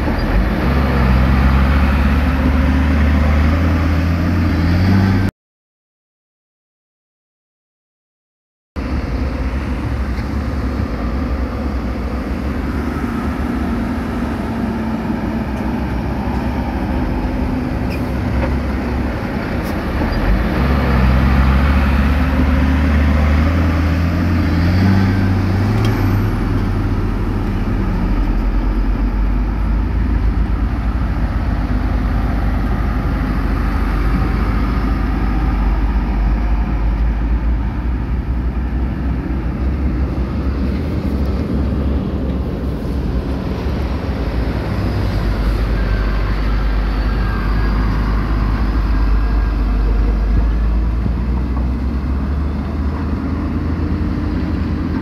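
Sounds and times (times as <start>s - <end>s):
diesel engine revving up: 0.0s - 5.3s, 8.8s - 55.0s
heavy diesel engines running: 0.0s - 5.3s, 8.8s - 55.0s.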